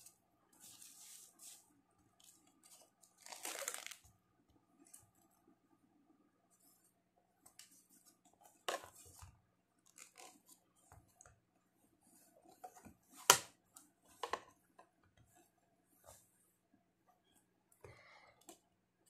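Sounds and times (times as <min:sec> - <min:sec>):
plastic pads rustling and clicking: 0:02.2 - 0:04.1.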